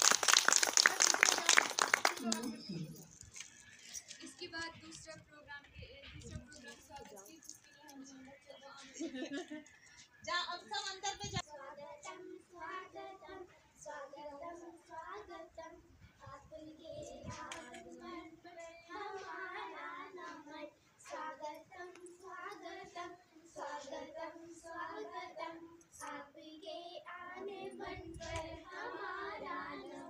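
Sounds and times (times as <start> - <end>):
children singing: 16.6 - 30.0.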